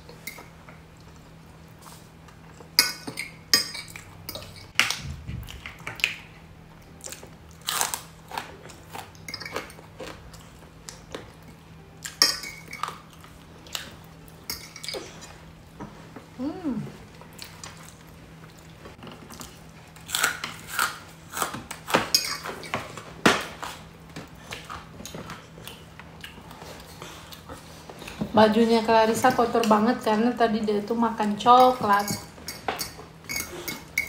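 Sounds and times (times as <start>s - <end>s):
chewing and crunching: 5.4s - 15.4s, 17.2s - 23.0s
cutlery clinking against dishes: 9.3s - 9.8s, 12.0s - 13.0s, 31.6s - 34.0s.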